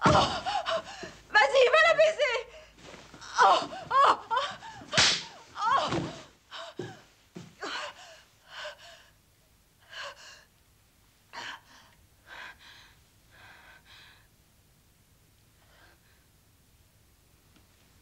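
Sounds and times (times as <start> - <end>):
woman gasping and crying out: 0.0 - 1.2
woman breathing raggedly: 0.2 - 1.3, 3.7 - 5.4, 6.0 - 9.2, 9.8 - 10.6, 11.3 - 14.4
sharp smack: 4.9 - 5.4.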